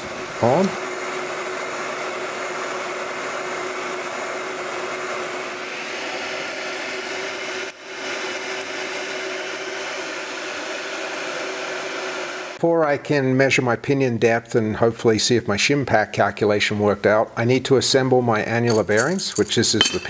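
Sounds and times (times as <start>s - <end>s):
hot air gun whirring: 0.0s - 12.6s.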